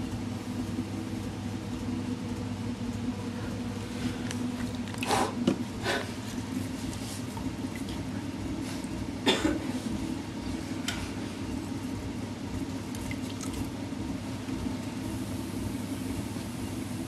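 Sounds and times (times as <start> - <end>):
steady low hum: 0.0 - 17.0
short coughs: 9.2 - 9.7.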